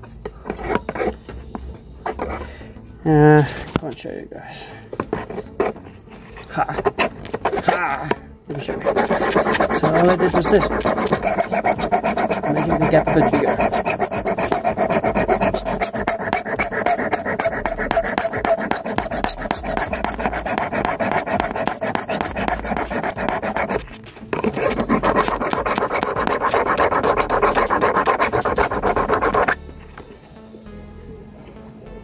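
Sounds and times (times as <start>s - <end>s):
hand file rasping on metal: 0.4s - 1.2s, 5.1s - 7.8s, 8.5s - 29.6s.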